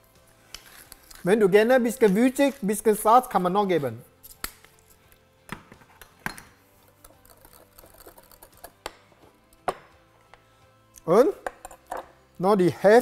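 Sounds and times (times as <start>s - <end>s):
pepper mill grinding peppercorns: 0.5s - 3.4s, 6.8s - 8.8s.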